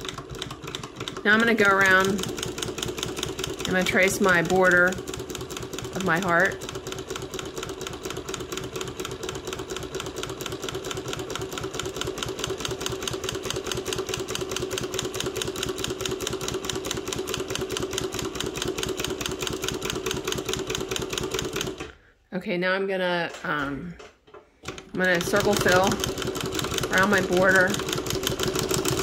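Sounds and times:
embroidery machine needle clatter: 0.0 - 21.9, 24.6 - 29.0.

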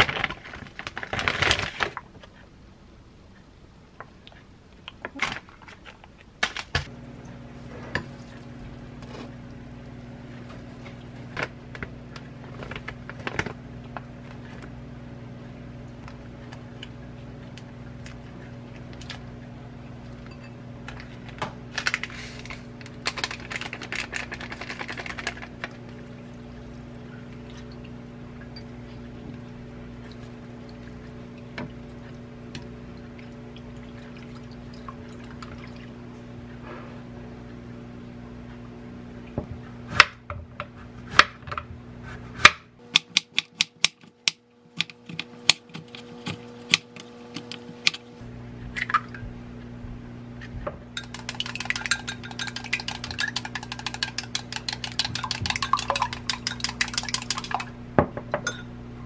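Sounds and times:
plastic packaging rustling: 0.0 - 2.1, 21.3 - 25.8
steady low hum: 6.2 - 59.0
chopsticks tapping: 43.0 - 48.0, 51.0 - 57.6
water pouring into bowl: 51.0 - 57.7.

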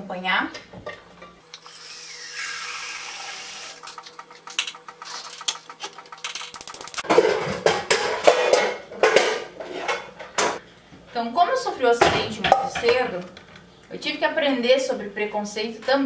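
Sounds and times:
water hissing from a tap: 1.6 - 3.8
scattered clicks and knocks: 3.8 - 9.3
metal pots and pans clattering: 4.5 - 10.6, 12.0 - 13.2.

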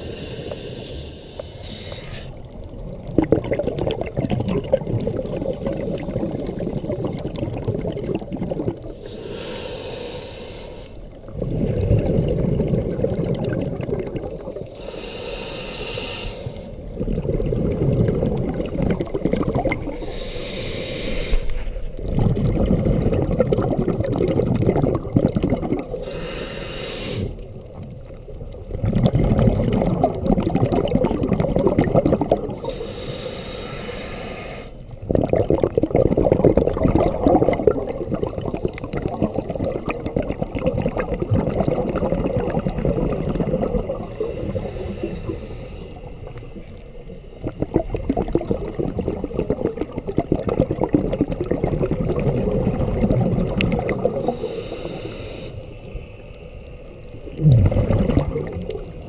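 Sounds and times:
regulator hissing inhale: 0.0 - 2.4, 8.9 - 11.2, 14.7 - 16.9, 19.9 - 22.0, 25.9 - 27.5, 32.6 - 34.9, 44.0 - 47.5, 54.0 - 57.4
exhaled bubbles rumbling: 2.3 - 9.1, 11.0 - 14.8, 16.8 - 20.6, 21.6 - 26.0, 27.3 - 32.8, 34.9 - 45.4, 46.0 - 55.0, 55.8 - 59.0.

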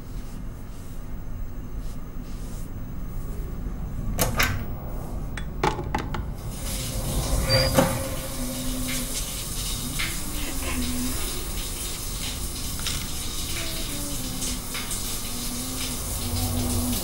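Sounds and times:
knocks and clicks of handling: 5.4 - 6.3
steady hiss: 6.3 - 17.0.

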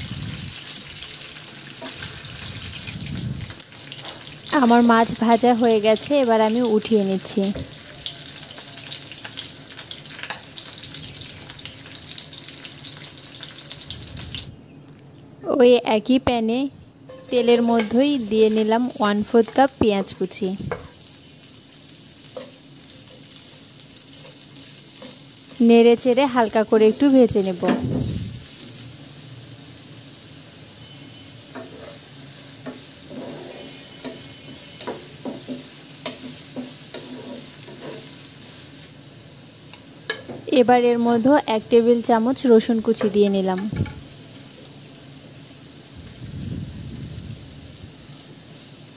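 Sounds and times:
fish sizzling in oil: 0.0 - 14.5, 17.1 - 48.9
spatula scraping pan: 31.1 - 38.8.

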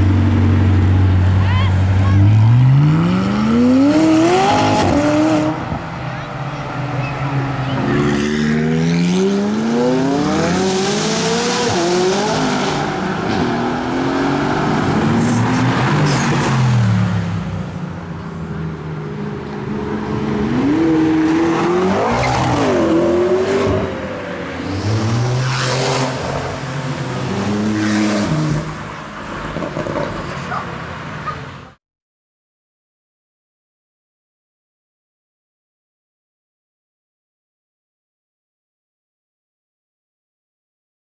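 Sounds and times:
sports car engines revving: 0.0 - 31.6.

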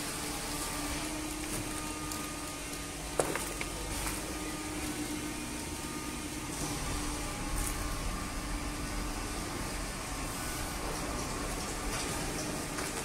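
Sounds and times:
baling machine humming: 0.0 - 13.0.

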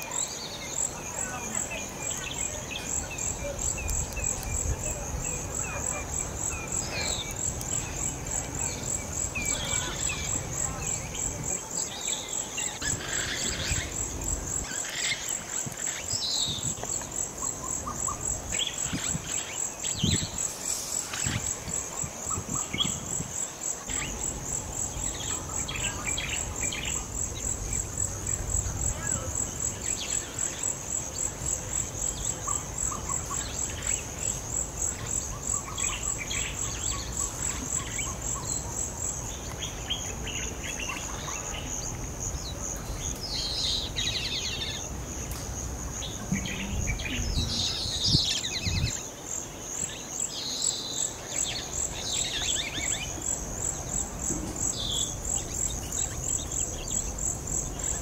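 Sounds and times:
bird calls and chirps: 0.0 - 23.2, 32.1 - 45.4, 46.0 - 49.2
high-pitched insect chorus: 0.0 - 58.0.

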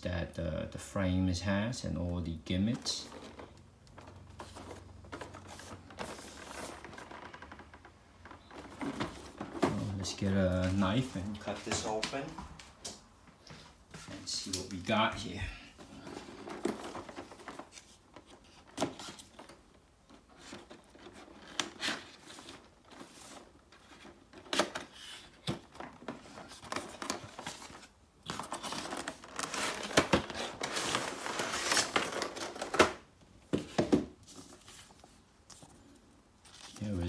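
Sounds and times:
plastic tray crinkling: 2.3 - 12.2, 14.2 - 33.1
cardboard flaps opening: 15.8 - 35.2.

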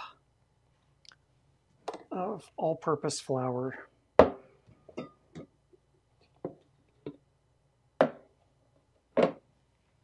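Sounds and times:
bowls and utensils knocking on countertop: 8.0 - 8.3.

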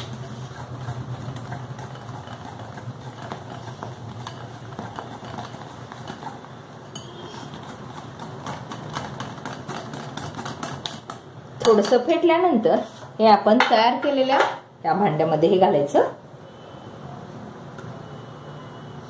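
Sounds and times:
whisk clicking against glass bowl: 0.0 - 12.0.

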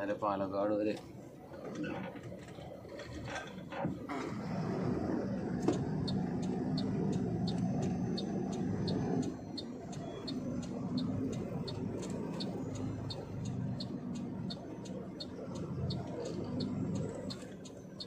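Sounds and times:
truck engine running: 0.0 - 18.0
turn indicator ticking: 5.6 - 18.0.

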